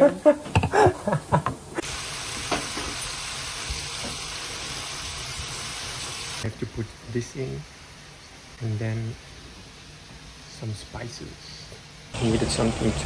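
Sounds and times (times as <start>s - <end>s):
onion sizzling in a pan: 1.7s - 10.7s.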